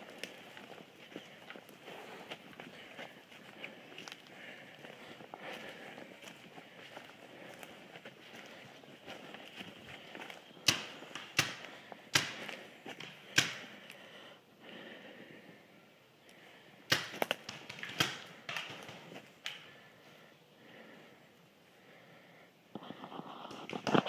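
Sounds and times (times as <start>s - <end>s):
paintball marker shots: 10.6s - 13.7s, 16.9s - 19.6s.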